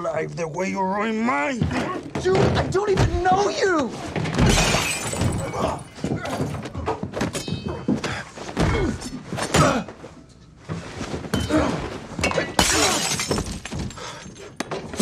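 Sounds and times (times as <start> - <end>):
glass breaking: 4.4 - 6.0, 12.3 - 14.0
punches and thuds: 8.4 - 9.9.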